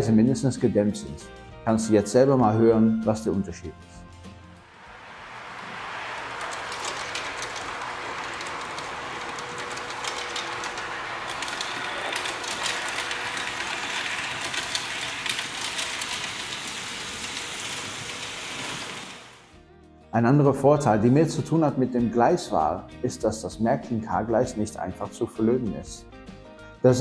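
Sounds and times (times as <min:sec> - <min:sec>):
model train rolling past: 0:04.6 - 0:19.5.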